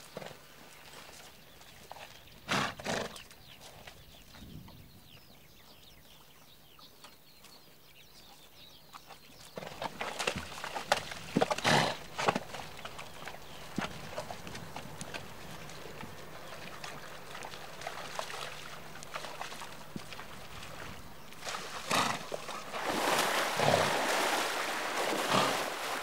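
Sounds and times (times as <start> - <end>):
hooves clattering: 8.3 - 26.0
water splashing: 9.7 - 26.0
horse blowing: 11.3 - 18.1, 18.8 - 26.0.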